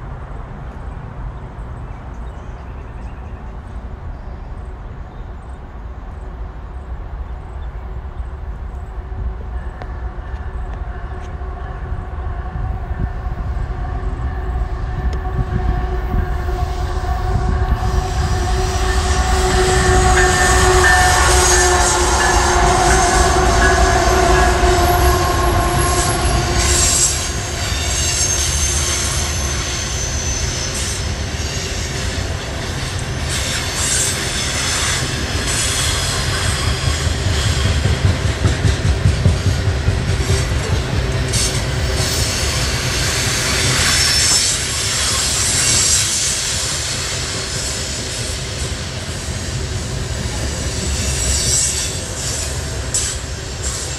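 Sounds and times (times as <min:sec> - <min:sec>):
locomotive whine: 0:03.8 - 0:53.9
train wheels rumbling and clacking: 0:05.4 - 0:53.9
high wheel squeal: 0:12.9 - 0:38.0, 0:40.2 - 0:53.9.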